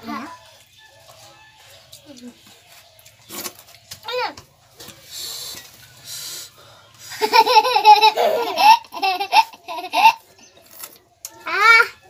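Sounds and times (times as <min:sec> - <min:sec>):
young child laughing: 0:07.2 - 0:10.3.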